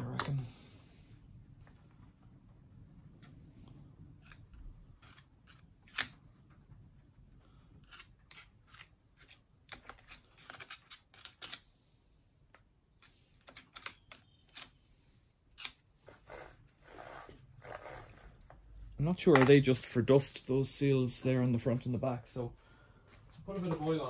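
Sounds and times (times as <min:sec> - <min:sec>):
screwdriver clicking and scraping metal: 0:04.2 - 0:06.2, 0:07.8 - 0:11.7.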